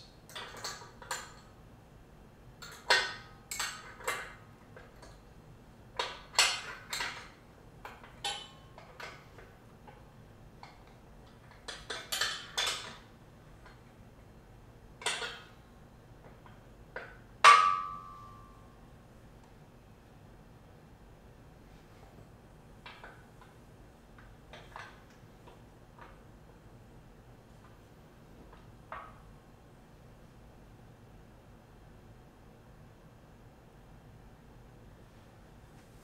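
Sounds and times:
metal clank ringing: 17.5s - 18.6s.

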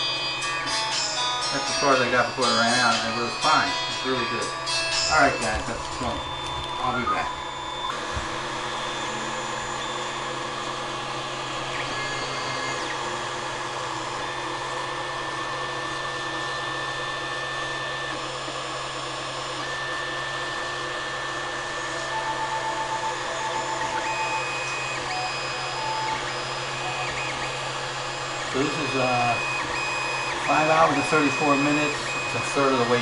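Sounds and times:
cooling fans whirring: 0.0s - 33.0s
stepper motors whining: 0.0s - 33.0s.

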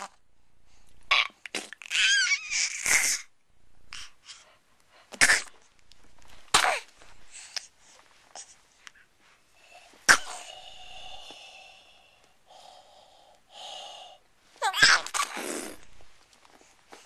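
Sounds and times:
baby squealing and puffing: 1.1s - 3.3s, 14.6s - 15.8s.

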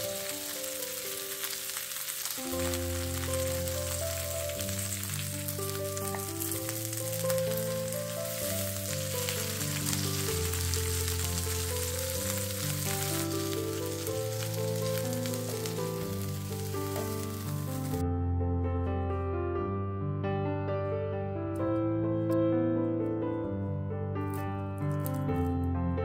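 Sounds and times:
food sizzling in oil: 0.0s - 18.0s
slow background music: 0.0s - 26.0s.

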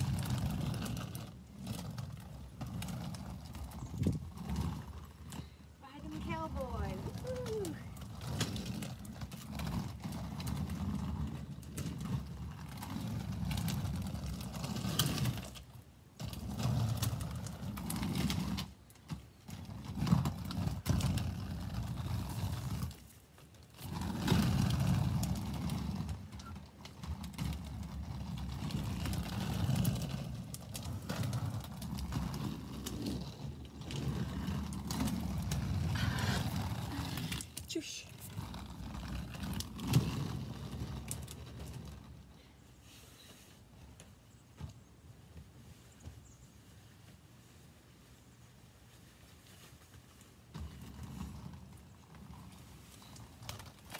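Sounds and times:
skate wheels rolling on pavement: 0.0s - 53.9s.

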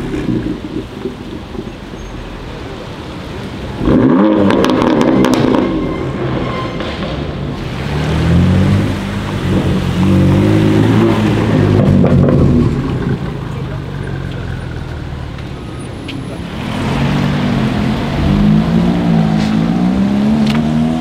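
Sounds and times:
car exhaust accelerating: 0.0s - 2.7s, 3.4s - 6.5s, 7.3s - 21.0s
sports car engine revving: 3.7s - 5.7s, 7.6s - 13.3s, 16.4s - 21.0s.

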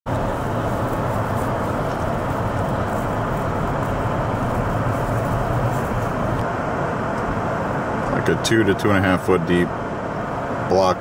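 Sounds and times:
car driving on snow: 0.1s - 6.7s.

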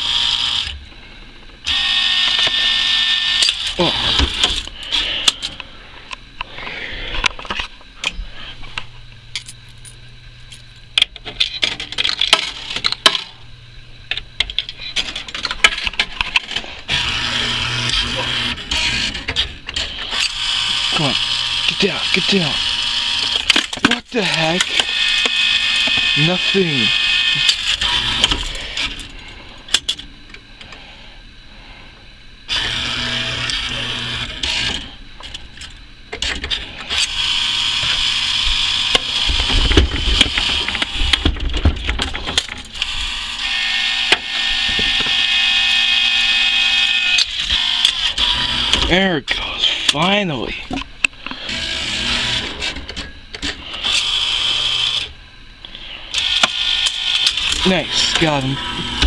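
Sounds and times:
claw machine mechanism running: 0.0s - 0.8s, 1.6s - 5.6s, 14.1s - 30.1s, 32.5s - 50.6s, 51.2s - 55.1s, 56.0s - 59.0s
low hum: 0.2s - 59.0s.

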